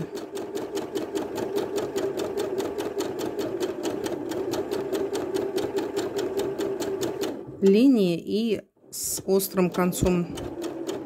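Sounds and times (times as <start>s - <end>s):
sewing machine running: 0.0s - 7.7s, 9.0s - 11.0s.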